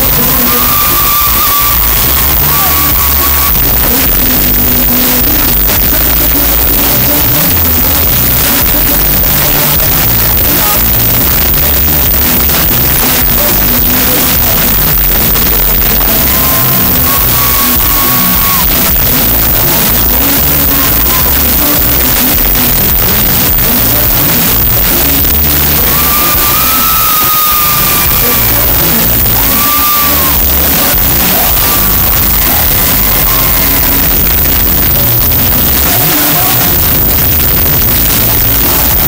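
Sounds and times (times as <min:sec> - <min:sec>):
heavy bass: 0:00.0 - 0:39.0
man singing: 0:00.0 - 0:39.0.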